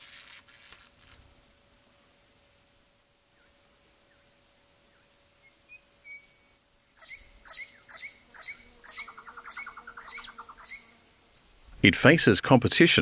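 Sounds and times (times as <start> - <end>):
parrots chirping: 7.0 - 10.9.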